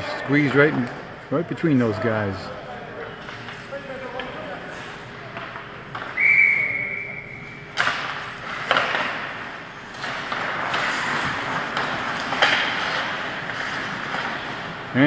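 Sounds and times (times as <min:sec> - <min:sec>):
hockey sticks and puck clacking: 0:03.2 - 0:15.0
whistle blast: 0:06.2 - 0:07.6
skates scraping on ice: 0:08.2 - 0:15.0.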